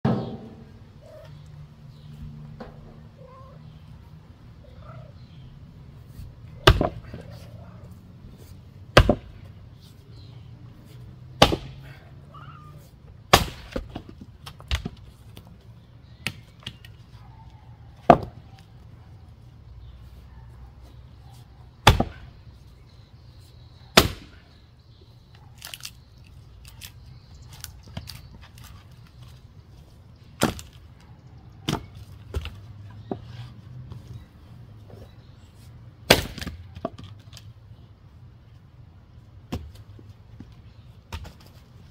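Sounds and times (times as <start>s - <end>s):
axe chopping firewood: 0.0s - 0.6s, 6.6s - 7.2s, 8.9s - 9.5s, 11.4s - 12.0s, 13.3s - 15.0s, 18.0s - 18.4s, 21.8s - 22.4s, 24.0s - 24.4s, 30.4s - 30.8s, 31.6s - 33.2s, 36.0s - 37.1s, 39.5s - 39.8s, 41.1s - 41.4s.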